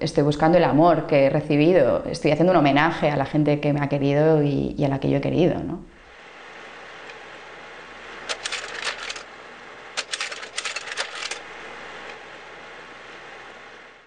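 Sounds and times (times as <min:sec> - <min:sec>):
steady hiss: 0:05.9 - 0:14.0
sharp mechanical clicks: 0:08.3 - 0:09.3, 0:10.0 - 0:11.4.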